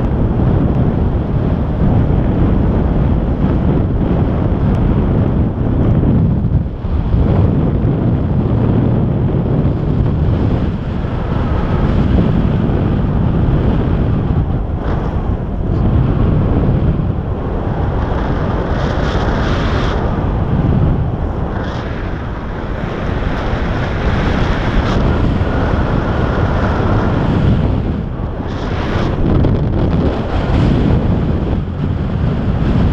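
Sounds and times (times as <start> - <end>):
wind buffeting microphone: 0.0 - 32.9.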